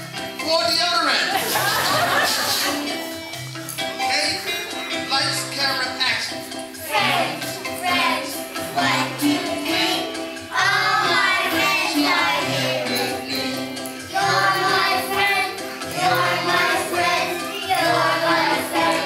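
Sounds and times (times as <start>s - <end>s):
instrumental accompaniment: 0.0s - 19.0s
children singing: 6.8s - 19.0s.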